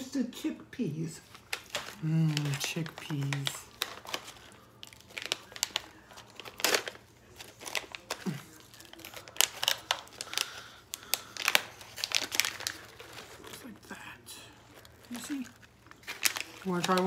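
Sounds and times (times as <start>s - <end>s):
foil pouch crinkling: 1.2s - 17.0s.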